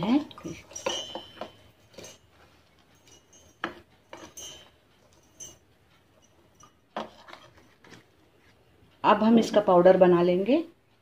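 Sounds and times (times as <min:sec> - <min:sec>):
spoon clinking on metal: 0:00.3 - 0:02.3, 0:03.0 - 0:05.6.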